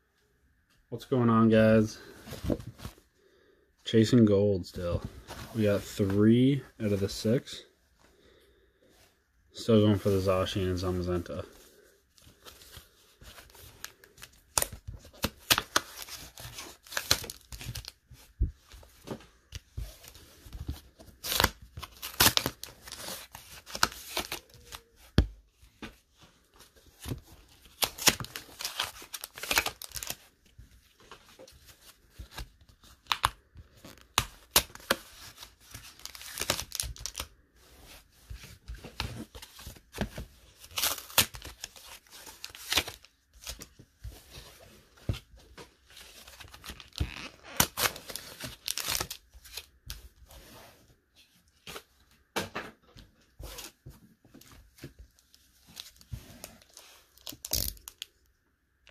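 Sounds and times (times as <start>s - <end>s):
foil wrappers crinkling and tearing: 21.2s - 24.8s, 27.6s - 30.2s, 33.0s - 37.3s, 40.6s - 43.6s, 46.2s - 49.7s, 55.7s - 58.1s.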